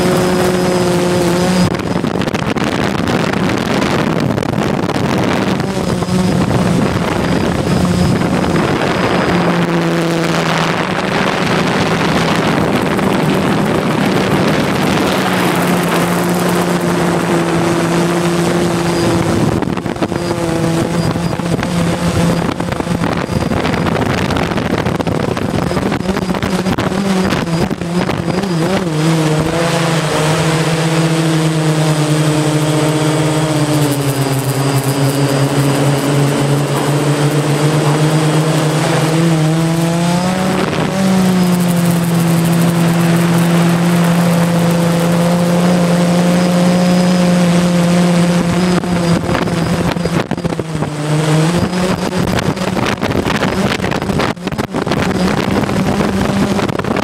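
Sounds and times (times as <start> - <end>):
drone propellers droning: 0.0 - 57.0
wind noise on microphone: 0.0 - 57.0.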